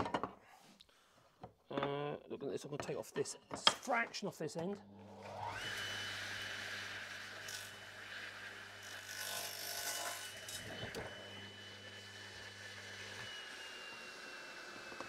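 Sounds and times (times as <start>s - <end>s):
power saw motor whining: 4.9s - 15.0s
saw blade cutting wood: 7.2s - 11.4s.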